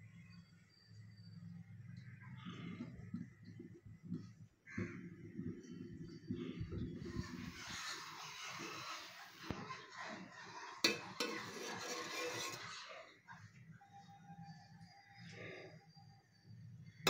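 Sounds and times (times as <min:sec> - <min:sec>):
spoon stirring rice in pan: 0:07.0 - 0:13.0.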